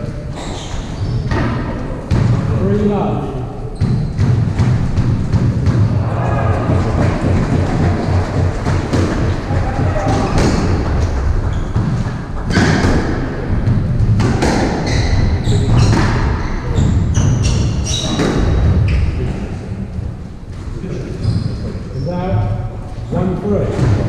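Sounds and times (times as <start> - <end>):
shoes squeaking on wooden floor: 0.3 - 1.4, 3.8 - 4.5, 6.2 - 13.0, 14.7 - 19.3, 21.1 - 22.2
squash ball striking rackets and walls: 0.6 - 3.0, 3.6 - 19.4, 23.6 - 24.0.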